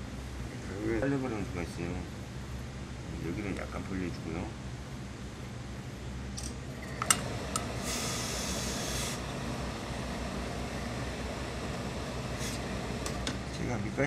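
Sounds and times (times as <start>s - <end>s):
steady low hum: 0.0s - 14.0s
steam hissing: 7.8s - 9.2s, 12.3s - 12.8s.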